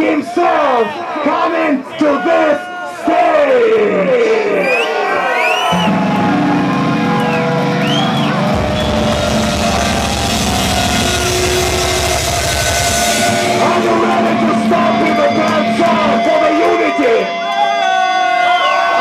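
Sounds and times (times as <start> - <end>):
bass guitar: 5.7 - 17.5
distorted guitars: 5.7 - 18.3
drum kit with crashing cymbals: 7.8 - 16.8.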